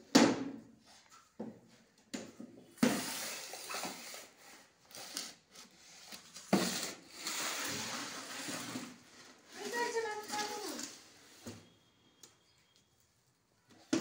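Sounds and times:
potty scraping across tiles: 0:02.8 - 0:11.8.

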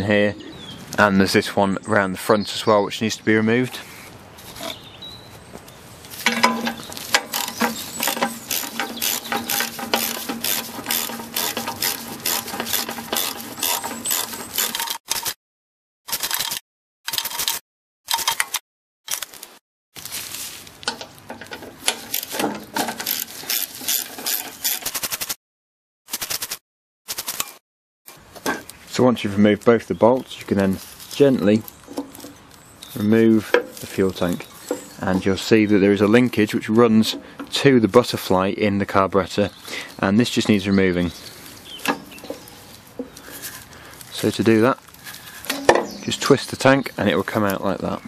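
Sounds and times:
socket ratchet clicking: 0:06.5 - 0:14.9.

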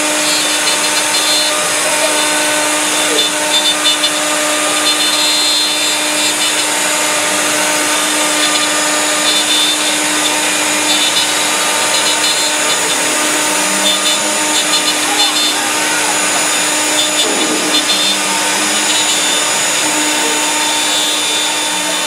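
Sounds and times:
router bit cutting wood: 0:00.0 - 0:22.0.

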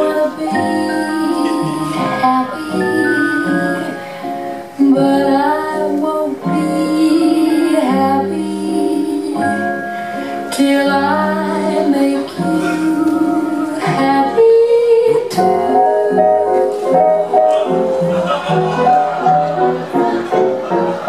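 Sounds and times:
woman singing slow melody: 0:00.0 - 0:16.7
musical accompaniment: 0:00.0 - 0:21.0.

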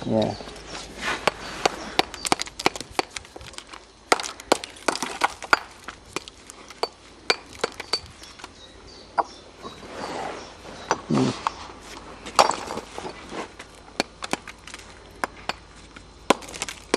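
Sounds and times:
bricks clinking and knocking: 0:01.2 - 0:08.3, 0:12.3 - 0:16.9.

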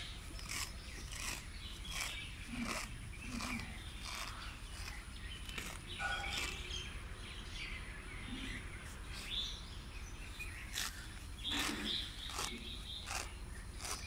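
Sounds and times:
grass being cut by hand: 0:00.0 - 0:06.9, 0:10.6 - 0:14.0
small birds chirping: 0:00.0 - 0:14.0.

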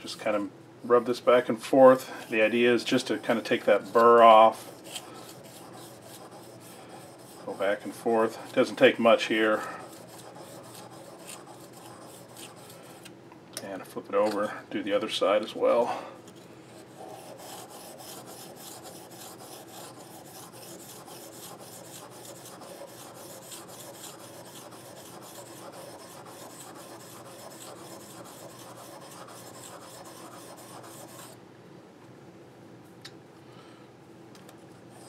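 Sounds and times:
blade rubbing on oilstone: 0:02.3 - 0:13.0, 0:16.7 - 0:31.4.

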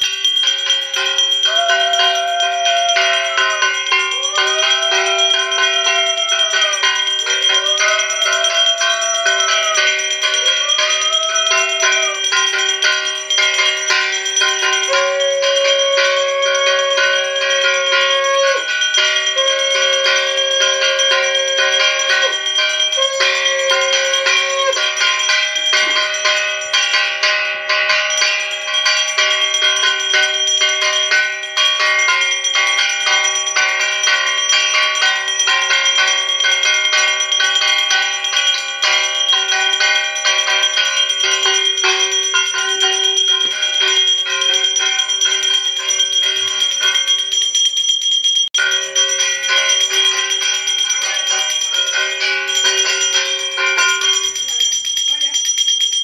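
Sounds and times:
hand bell ringing fast: 0:00.0 - 0:56.0
long held notes: 0:14.7 - 0:25.0.

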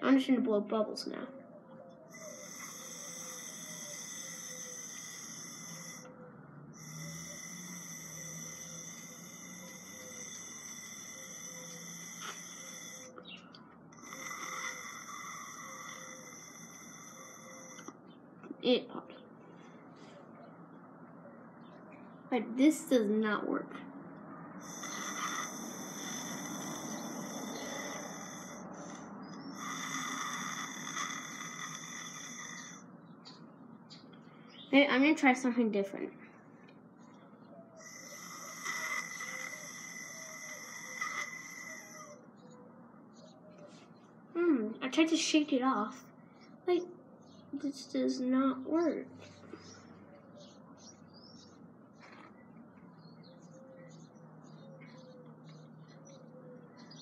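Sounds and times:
breath blowing through straw: 0:02.3 - 0:06.1, 0:06.8 - 0:13.2, 0:24.6 - 0:32.8, 0:37.8 - 0:42.2.

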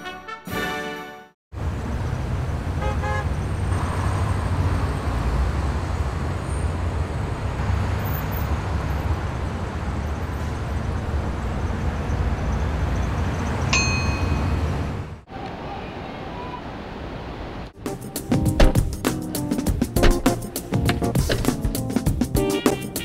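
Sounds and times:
car horn toot: 0:02.8 - 0:03.3.

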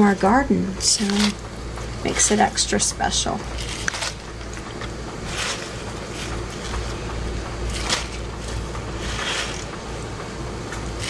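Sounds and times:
steady low hum: 0:00.0 - 0:11.0
leaves rustling into a pot: 0:03.4 - 0:07.0, 0:07.6 - 0:10.1.

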